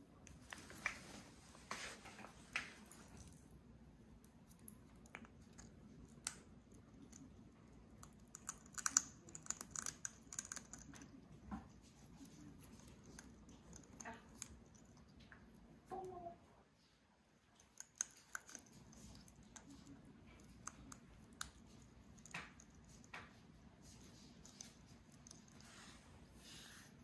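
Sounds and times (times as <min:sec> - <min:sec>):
parrot pecking on wooden floor: 0:04.1 - 0:15.8, 0:17.5 - 0:26.5.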